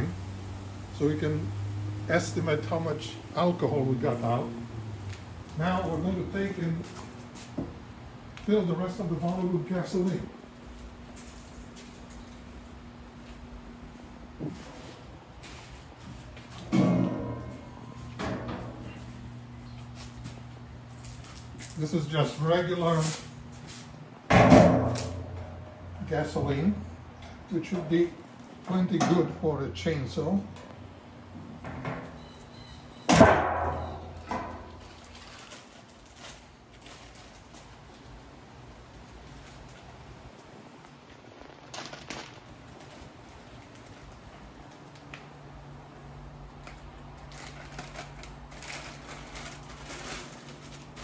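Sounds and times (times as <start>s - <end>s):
steady low hum: 0.0s - 51.0s
plastic bag crinkling: 34.7s - 38.2s, 41.1s - 45.0s, 46.8s - 51.0s.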